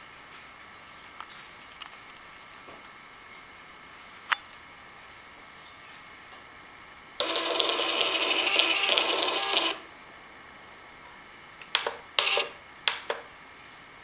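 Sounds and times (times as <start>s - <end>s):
printer paper feed whirs: 7.2s - 9.9s, 12.2s - 12.6s
receipt printer buzzing: 7.2s - 9.9s, 11.8s - 12.6s.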